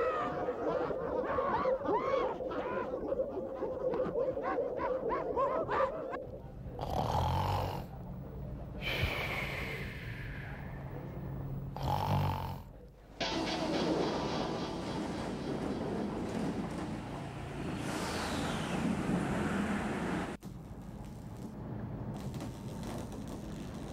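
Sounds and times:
man snoring: 0:06.8 - 0:07.9, 0:11.8 - 0:12.7.

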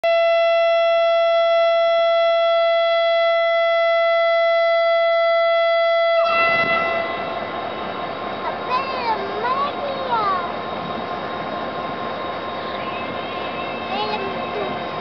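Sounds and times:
locomotive air horn: 0:00.0 - 0:07.9
diesel engine rumble: 0:05.7 - 0:15.0
train rolling past: 0:05.8 - 0:15.0.

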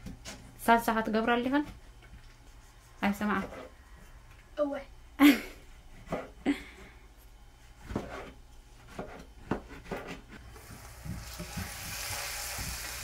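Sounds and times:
hot oil sizzling: 0:10.5 - 0:13.0.

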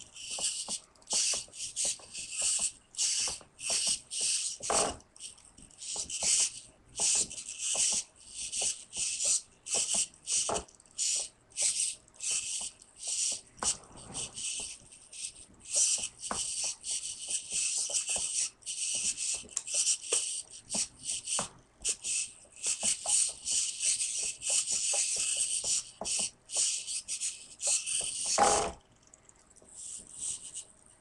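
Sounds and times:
small servos buzzing whine: 0:00.0 - 0:28.8, 0:29.8 - 0:30.8.

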